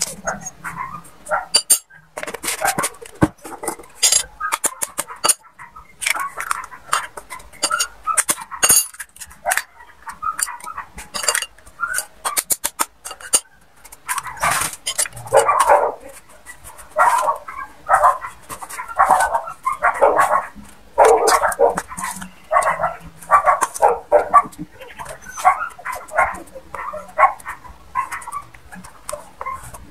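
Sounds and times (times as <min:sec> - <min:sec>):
dog barking: 0:00.2 - 0:03.0, 0:04.2 - 0:07.0, 0:08.0 - 0:08.8, 0:09.4 - 0:11.0, 0:14.0 - 0:14.6, 0:15.2 - 0:16.2, 0:17.0 - 0:29.7.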